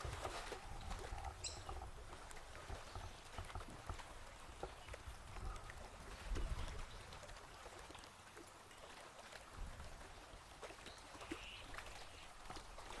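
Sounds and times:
water lapping at shore: 0.0 - 13.0.

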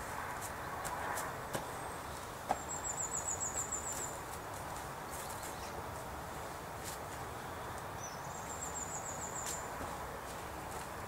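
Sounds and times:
background hiss: 0.0 - 11.0
soft steps on grass: 3.5 - 7.9, 9.4 - 11.0.

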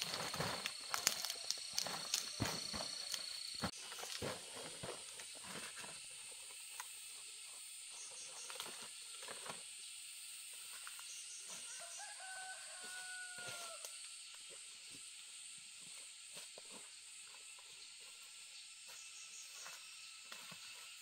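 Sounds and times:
rooster crowing: 11.6 - 13.9.

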